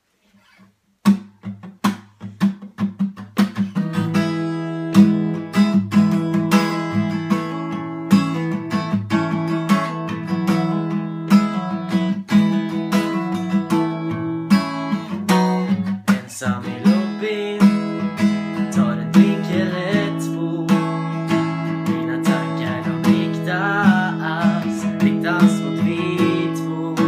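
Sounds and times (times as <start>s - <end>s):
acoustic guitar strumming: 1.0s - 27.0s.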